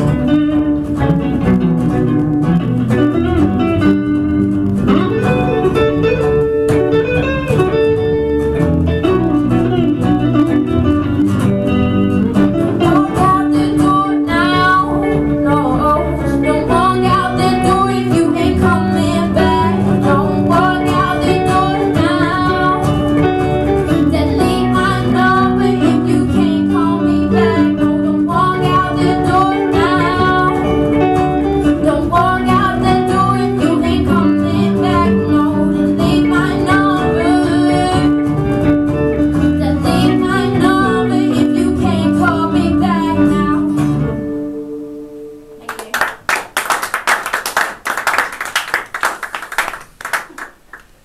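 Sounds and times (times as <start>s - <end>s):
live pop-rock band: 0.0s - 45.6s
woman singing: 12.8s - 31.0s, 31.6s - 38.6s, 39.4s - 44.0s
people clapping: 45.6s - 51.0s.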